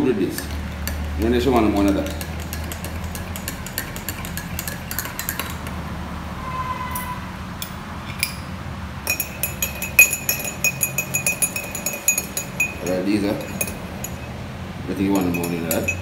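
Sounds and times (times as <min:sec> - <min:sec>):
teaspoon clinking in ceramic mug: 0:00.4 - 0:05.7, 0:09.1 - 0:14.3, 0:15.1 - 0:16.0.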